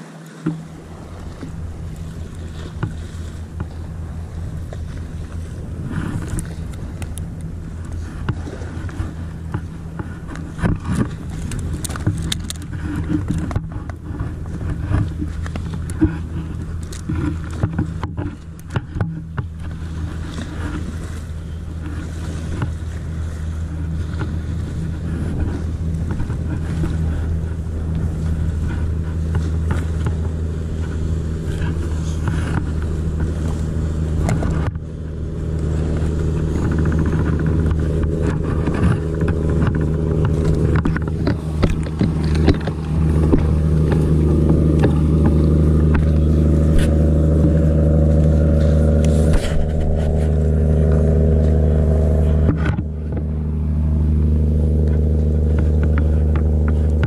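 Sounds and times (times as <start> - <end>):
boat engine humming: 0.0 - 57.0
handling knocks and clicks: 6.1 - 20.8, 35.9 - 47.6.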